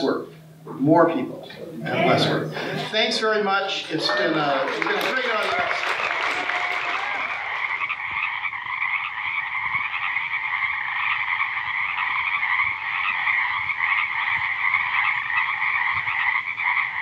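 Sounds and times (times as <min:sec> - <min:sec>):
chorus of frogs calling: 0:03.7 - 0:17.0.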